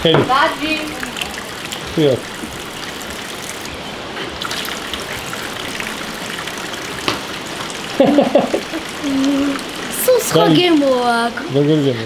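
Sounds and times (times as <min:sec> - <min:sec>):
water splashing into basin: 0:00.0 - 0:10.9
girl laughing: 0:07.9 - 0:09.6.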